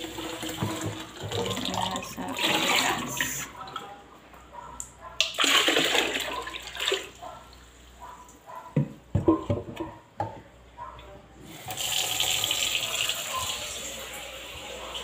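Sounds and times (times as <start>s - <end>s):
tap water splashing into pitcher: 0.0s - 3.9s, 4.8s - 7.2s.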